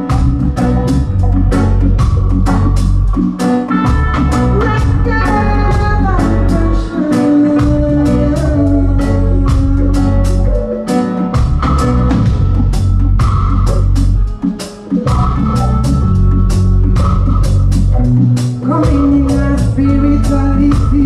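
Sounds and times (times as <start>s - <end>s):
reggae band playing live: 0.0s - 21.0s
woman singing: 4.5s - 10.7s, 18.6s - 21.0s.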